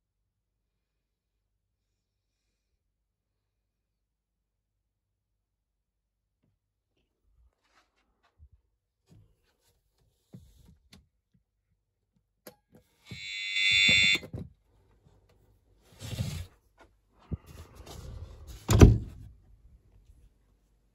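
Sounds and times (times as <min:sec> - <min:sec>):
alarm buzzer tone: 0:13.1 - 0:14.2.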